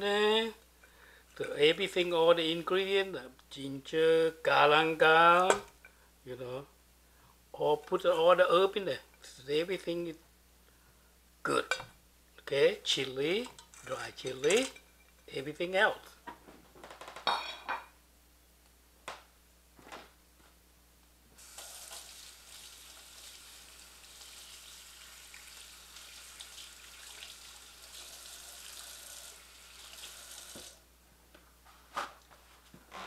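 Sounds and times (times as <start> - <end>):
plate clattering: 13.6 - 14.9, 17.3 - 17.9
kitchen tap running: 21.4 - 30.8.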